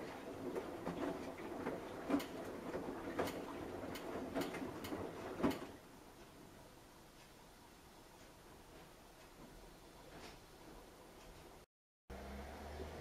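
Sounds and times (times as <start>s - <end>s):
washing machine drum sloshing water: 0.0s - 5.9s
laundry knocking in drum: 0.5s - 5.8s.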